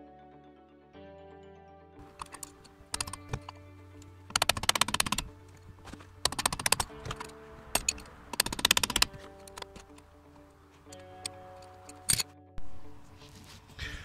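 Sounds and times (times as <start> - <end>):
background music with held notes: 0.0 - 14.0
rapid metallic clicking: 2.0 - 10.1.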